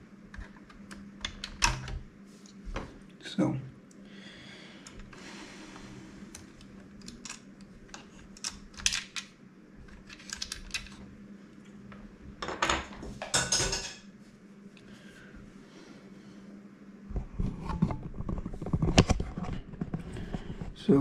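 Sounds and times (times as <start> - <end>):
plastic parts clicking and knocking: 9.9 - 11.0.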